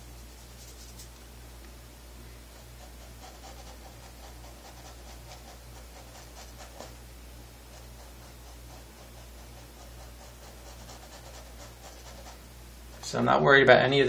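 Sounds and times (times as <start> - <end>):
low electrical hum: 0.0 - 14.0
paintbrush scratching on canvas: 0.2 - 1.2, 2.4 - 7.0, 7.6 - 13.2.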